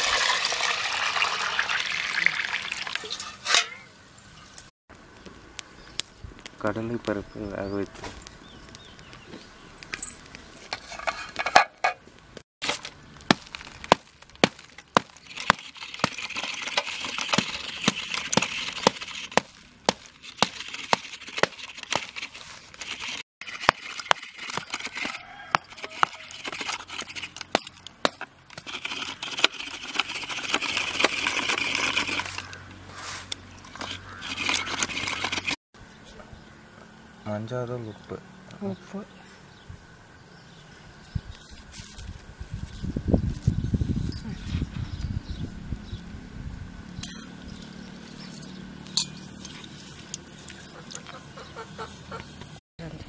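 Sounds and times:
knife scraping coconut: 0:28.5 - 0:35.6
metal clinking on plate: 0:48.9 - 0:49.4.

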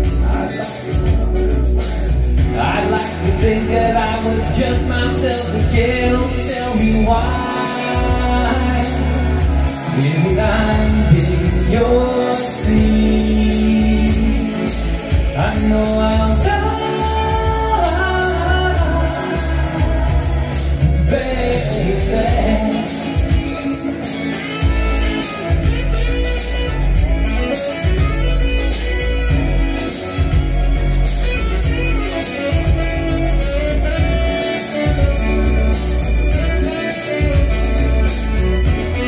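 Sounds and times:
man singing into microphone: 0:00.0 - 0:25.8
pop backing track with bass: 0:00.0 - 0:39.0.

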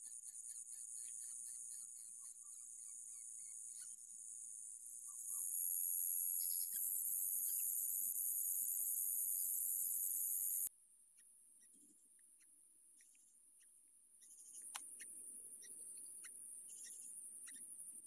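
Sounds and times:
shrill insect chorus: 0:00.0 - 0:10.7, 0:14.4 - 0:18.0.

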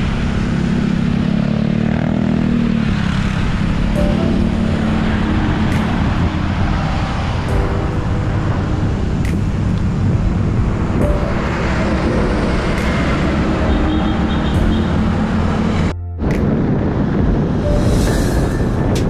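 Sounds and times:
passing cars: 0:00.0 - 0:19.0
truck passing: 0:00.0 - 0:19.0
wind rush on microphone: 0:05.4 - 0:13.6, 0:14.6 - 0:19.0.

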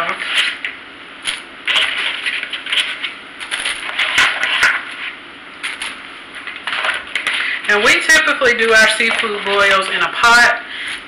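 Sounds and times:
shells scraping plastic bowl: 0:01.7 - 0:08.0.

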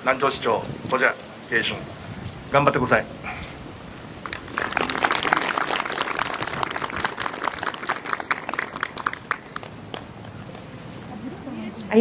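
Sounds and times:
people applauding: 0:04.2 - 0:10.1.

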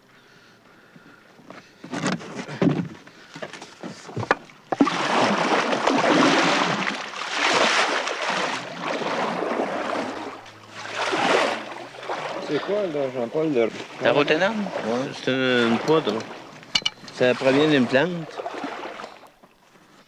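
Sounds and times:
knocks and handling sounds: 0:01.5 - 0:04.8, 0:15.9 - 0:17.2
water churning and splashing: 0:02.0 - 0:19.9.

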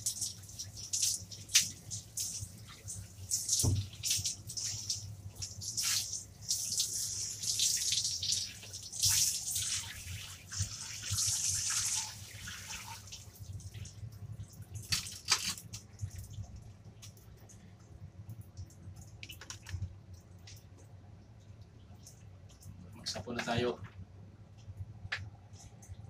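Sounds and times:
shower head spraying water: 0:00.0 - 0:13.0
water dripping: 0:00.0 - 0:23.1.

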